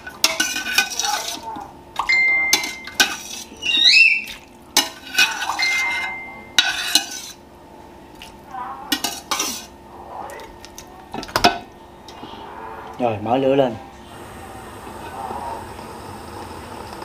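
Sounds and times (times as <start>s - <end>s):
metal utensil scraping a pot: 0.0s - 1.5s, 2.5s - 3.8s, 4.8s - 7.4s, 8.9s - 9.7s
short squeak: 3.6s - 4.3s.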